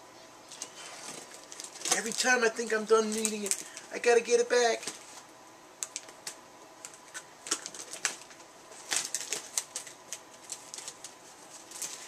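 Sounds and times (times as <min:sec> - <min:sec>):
plastic wrap crinkling: 0:00.5 - 0:12.0.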